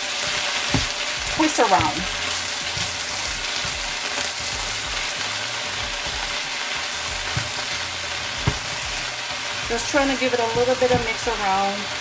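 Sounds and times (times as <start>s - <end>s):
kale sizzling in oil: 0.0s - 12.0s
soft stirring knocks: 7.2s - 7.6s.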